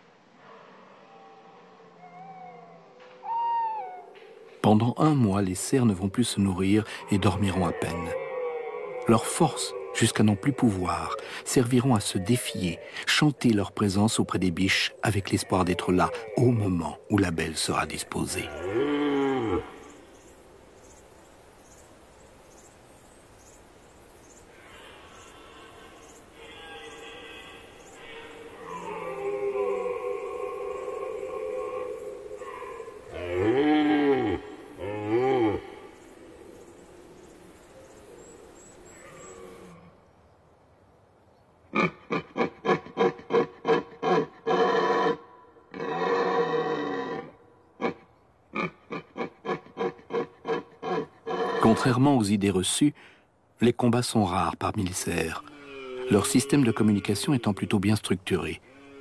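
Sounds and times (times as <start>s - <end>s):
insects chirping: 3.2s - 44.4s, 47.3s - 59.0s
deer stag roaring: 5.8s - 12.8s, 15.3s - 17.0s, 18.2s - 20.0s, 24.5s - 36.4s, 41.8s - 48.0s, 48.6s - 52.0s, 55.2s - 57.7s, 58.6s - 59.0s.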